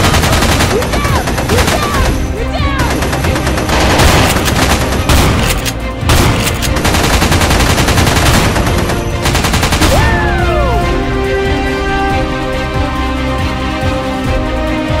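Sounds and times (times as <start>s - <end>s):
rapid automatic gunfire: 0.0s - 10.0s
music: 0.0s - 15.0s.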